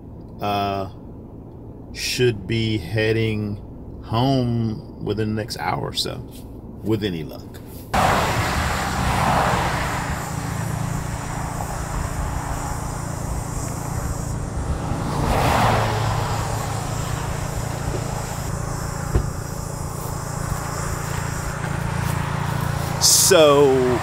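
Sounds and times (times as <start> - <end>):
cars passing: 7.9 - 24.0
low hum: 9.8 - 24.0
sharp knock: 19.0 - 19.5.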